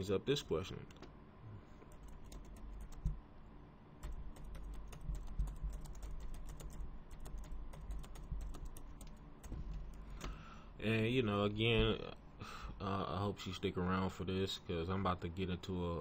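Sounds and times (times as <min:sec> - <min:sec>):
computer keyboard typing: 0:01.9 - 0:03.2, 0:04.0 - 0:10.4.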